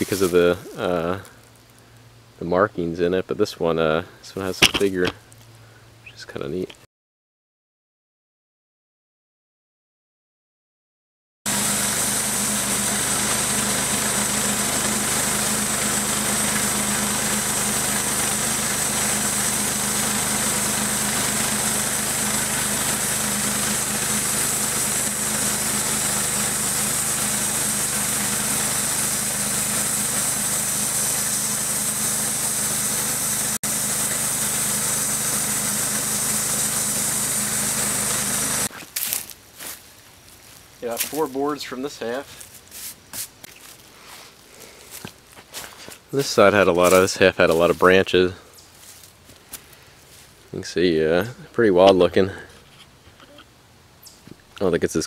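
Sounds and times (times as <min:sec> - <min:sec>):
band saw cutting wood: 0:11.5 - 0:38.7
engine running under load: 0:11.5 - 0:38.7.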